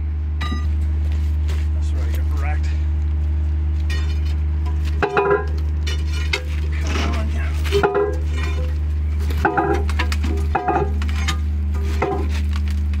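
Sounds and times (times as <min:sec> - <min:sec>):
steady low hum: 0:00.0 - 0:13.0
steel pieces clinking and scraping: 0:03.9 - 0:12.8.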